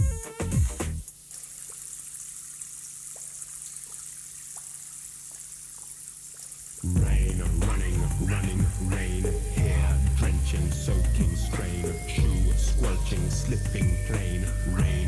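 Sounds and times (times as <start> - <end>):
electronic music with drum beat: 0.0 - 1.0, 6.9 - 15.0.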